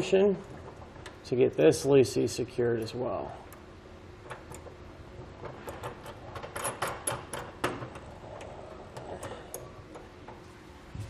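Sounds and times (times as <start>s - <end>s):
metal washers and nut clinking: 5.4s - 8.0s.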